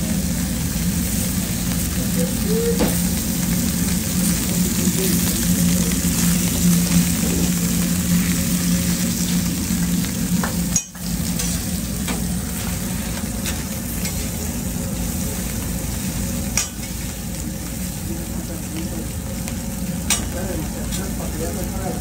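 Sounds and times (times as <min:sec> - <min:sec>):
meat sizzling on a griddle: 0:00.0 - 0:22.0
low hum: 0:02.2 - 0:17.6.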